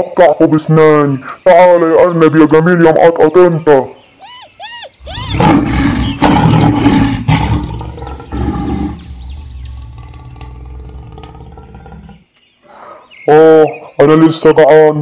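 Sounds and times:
tiger roaring and snarling: 5.0 - 12.3.

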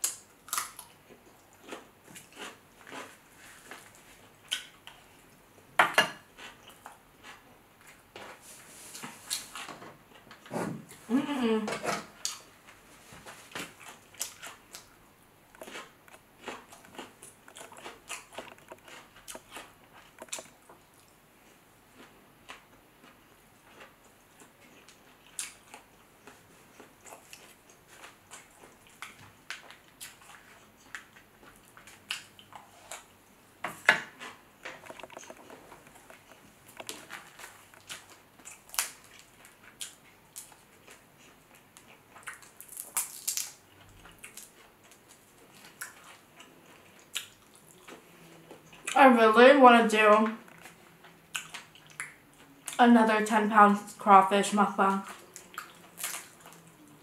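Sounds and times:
chewing and wet smacking: 0.0 - 5.4, 12.1 - 12.6, 13.4 - 21.2, 21.9 - 33.2, 33.8 - 49.0, 50.1 - 52.8, 54.8 - 57.0
shells being peeled: 42.5 - 43.6.

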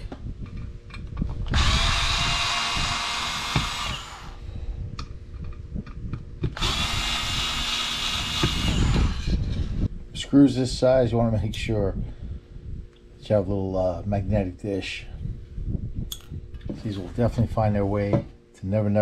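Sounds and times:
power screwdriver running: 1.5 - 4.4, 6.6 - 9.6.

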